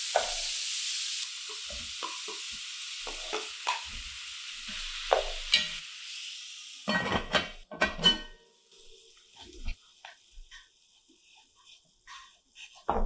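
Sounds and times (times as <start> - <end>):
meat sizzling in a pot: 0.0 - 13.0.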